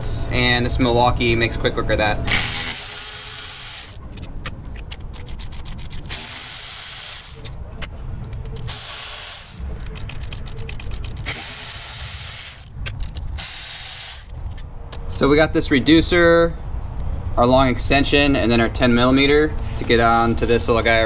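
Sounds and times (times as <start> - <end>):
rapid ratchet clicking: 0.4 - 0.9, 2.3 - 7.6, 8.6 - 14.6
electric ratchet motor whir: 2.3 - 4.0, 5.0 - 7.6, 8.6 - 14.4.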